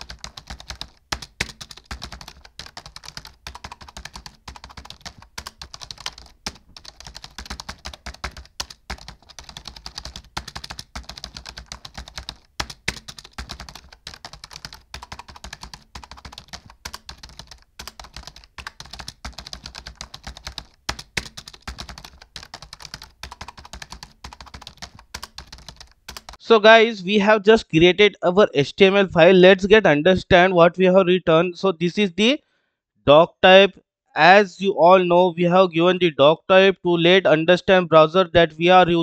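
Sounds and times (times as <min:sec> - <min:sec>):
fast typing on keyboard: 0:00.0 - 0:26.4.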